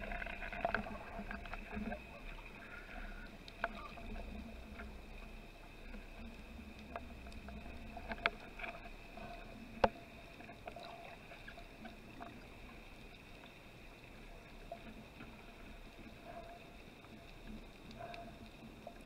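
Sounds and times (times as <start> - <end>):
faint underwater hiss: 0.0 - 19.0
sharp underwater clicks: 6.3 - 13.3.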